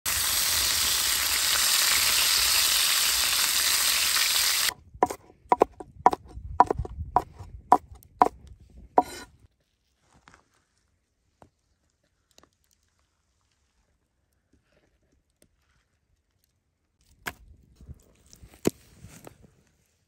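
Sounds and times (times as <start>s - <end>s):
chicken sizzling in a pan: 0.1s - 4.7s
knife chopping on wooden board: 5.0s - 7.9s, 9.0s - 9.3s.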